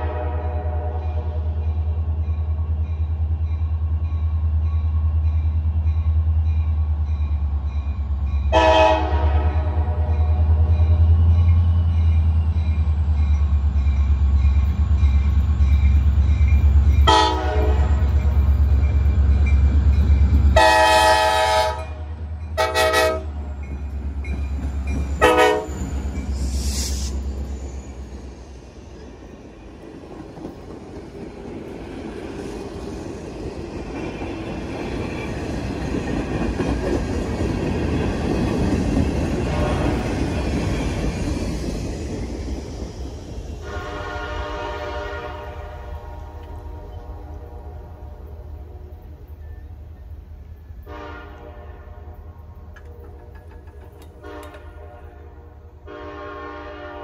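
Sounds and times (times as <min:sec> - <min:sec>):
train horn blasts: 0:00.0 - 0:01.7, 0:08.5 - 0:11.8, 0:17.0 - 0:18.6, 0:20.5 - 0:23.5, 0:25.2 - 0:25.9, 0:39.4 - 0:40.2, 0:43.6 - 0:49.2, 0:50.8 - 0:53.4, 0:54.0 - 0:57.0
locomotive engine rumbling: 0:00.0 - 0:57.0
crossing bell ringing: 0:00.8 - 0:28.6
train wheels rolling: 0:01.0 - 0:47.5, 0:52.1 - 0:55.8.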